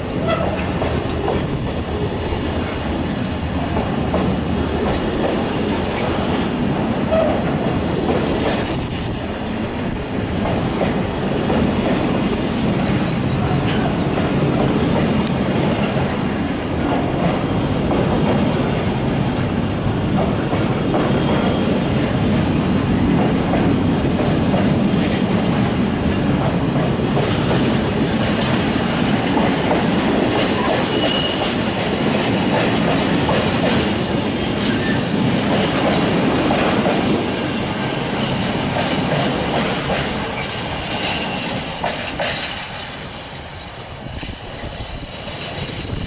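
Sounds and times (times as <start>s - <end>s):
train wagons rolling past: 0.0s - 46.0s
wheels clicking over rail joints: 10.2s - 46.0s.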